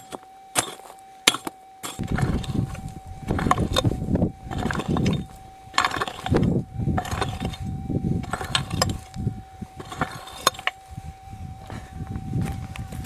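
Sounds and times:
pick chopping into dirt: 0.0s - 3.9s
gravel rattling: 0.0s - 13.0s.

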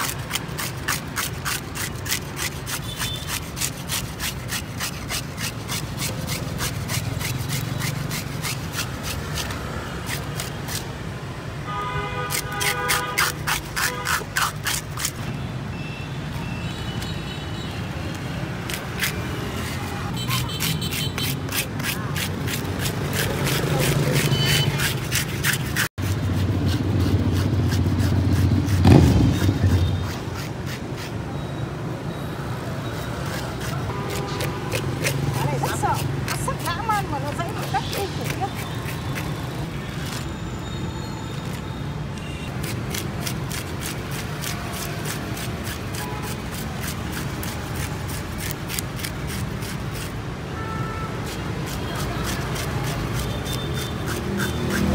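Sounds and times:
knife scraping fish scales: 0.0s - 11.0s, 12.3s - 15.3s, 18.6s - 31.2s, 32.9s - 40.3s, 42.5s - 50.2s, 51.1s - 54.9s
road traffic: 0.0s - 54.9s
motorbike passing: 18.3s - 31.0s, 51.8s - 54.9s.

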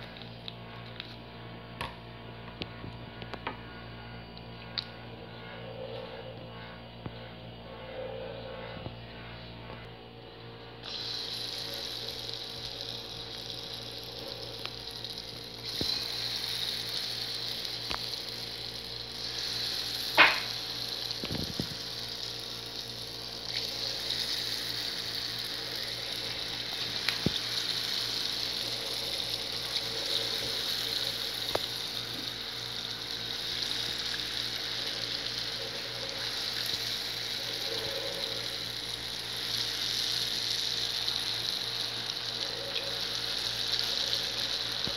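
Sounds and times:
dough sizzling in hot oil: 10.8s - 44.9s.

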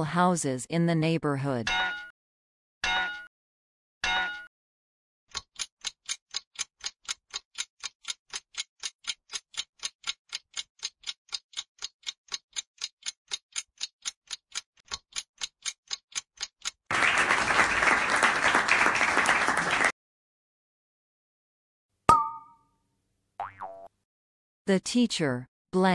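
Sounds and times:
clock ticking: 5.3s - 16.9s
applause: 16.9s - 20.0s.

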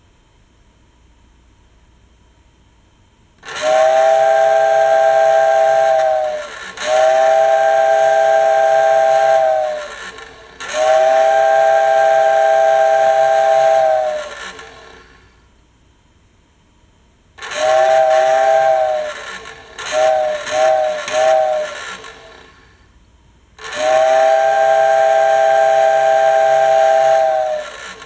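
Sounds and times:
model train whistle blasts: 3.4s - 15.2s, 17.4s - 22.6s, 23.6s - 28.0s.

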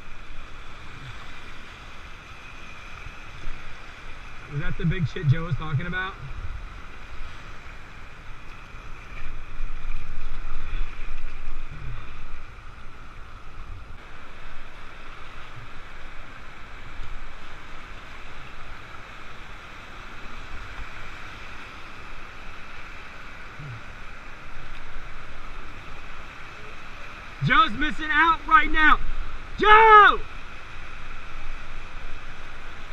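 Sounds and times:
whitewater rapids rushing: 9.1s - 32.9s.

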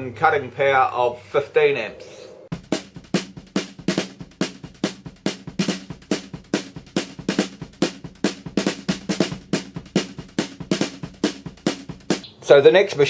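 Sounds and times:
drum kit beat: 2.5s - 12.4s.

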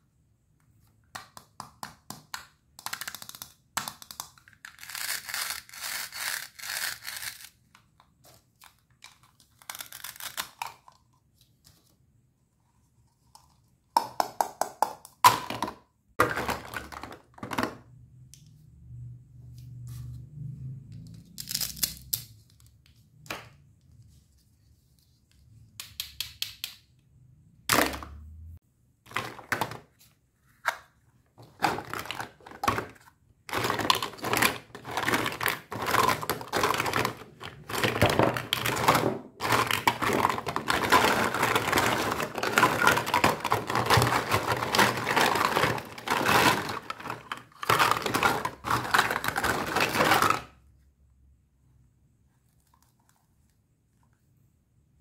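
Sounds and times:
plastic toys clattering in a box: 31.4s - 50.5s.

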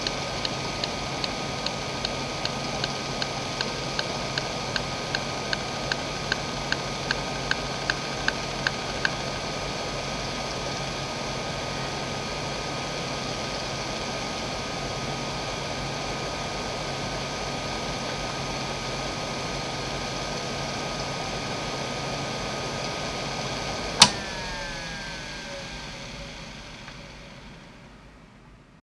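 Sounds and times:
hard drive sharp click: 0.0s - 9.3s, 23.9s - 27.6s
hard drive heads ticking: 0.0s - 9.8s
hard drive spinning down: 0.0s - 28.8s
hard drive whir and whine: 0.0s - 28.8s.

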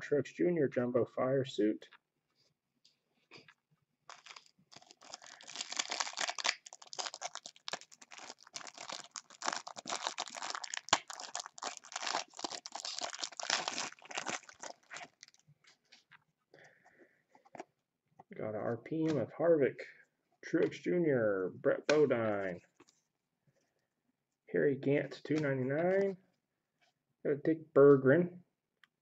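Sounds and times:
foil wrapper tearing and crinkling: 4.1s - 15.4s.

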